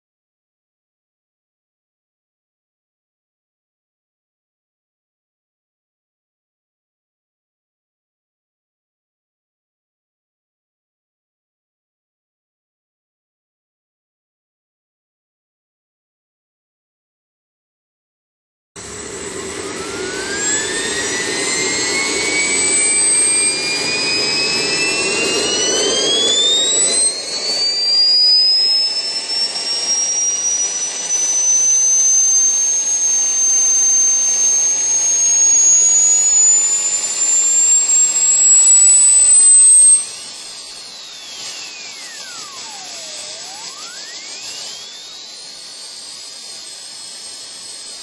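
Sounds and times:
turbine engine rumble: 18.8s - 47.9s
turbine whine rising in pitch: 18.8s - 48.0s
swooping tone: 18.9s - 30.1s, 34.4s - 45.6s.

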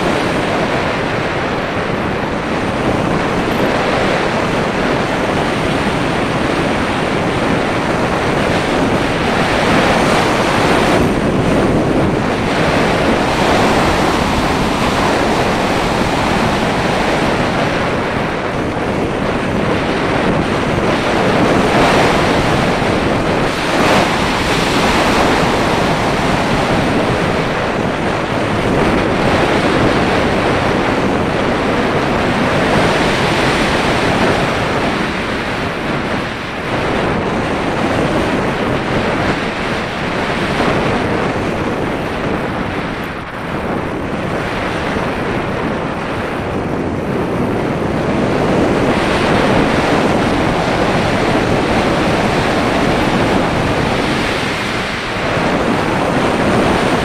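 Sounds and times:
wind rushing over camera: 0.0s - 57.0s.

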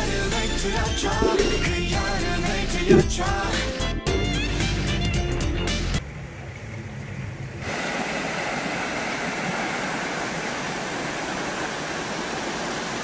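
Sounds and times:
water rushing over rocks: 1.0s - 1.9s, 7.6s - 13.0s.

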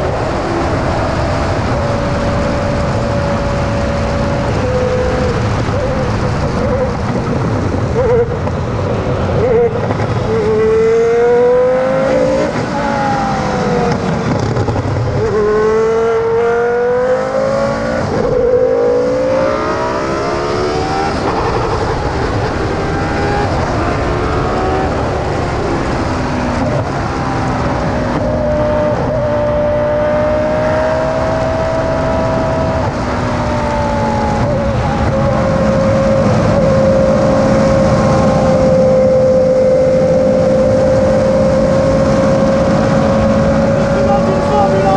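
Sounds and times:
racing car engine at high revs: 0.0s - 44.9s.

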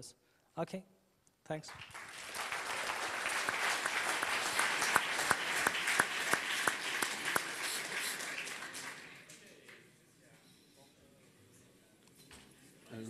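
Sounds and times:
audience applauding: 1.7s - 9.8s.

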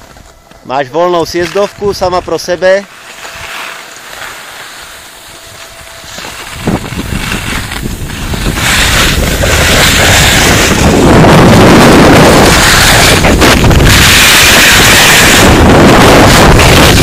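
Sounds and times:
wind buffeting microphone: 5.4s - 17.0s.

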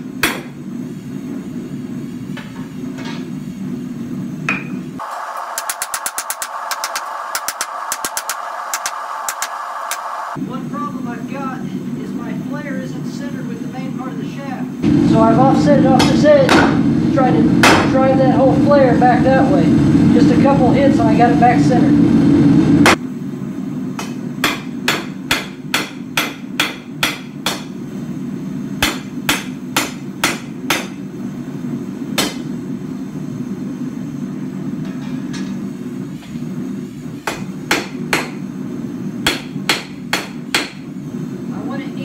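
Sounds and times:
forge burner roar: 0.0s - 42.0s
hammer striking steel on anvil: 0.2s - 0.6s, 4.5s - 4.8s, 24.0s - 27.8s, 28.8s - 31.0s, 32.2s - 32.5s, 37.2s - 38.4s, 39.2s - 40.8s.

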